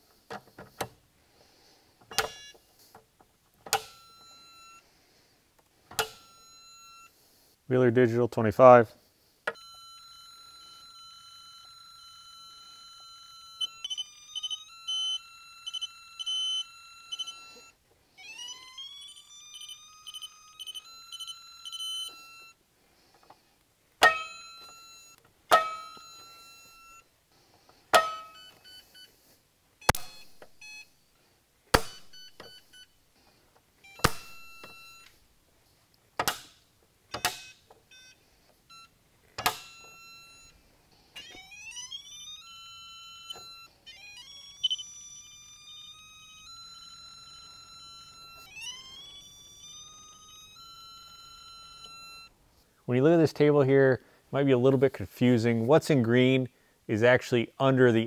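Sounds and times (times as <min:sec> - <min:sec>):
electronic beeping: 0:02.1 - 0:02.6, 0:09.6 - 0:22.6, 0:28.0 - 0:29.1, 0:29.8 - 0:31.1, 0:31.8 - 0:33.0, 0:33.8 - 0:35.1, 0:37.1 - 0:40.6, 0:41.2 - 0:52.3.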